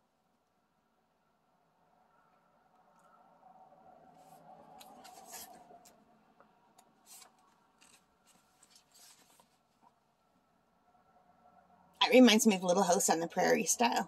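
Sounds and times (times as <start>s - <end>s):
paper pages turning: 4.8s - 5.6s, 7.0s - 9.8s.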